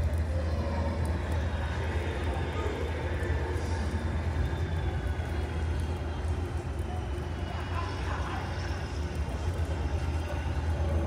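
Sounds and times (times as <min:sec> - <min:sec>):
constant low hum: 0:00.0 - 0:11.0
rain falling: 0:00.0 - 0:11.0.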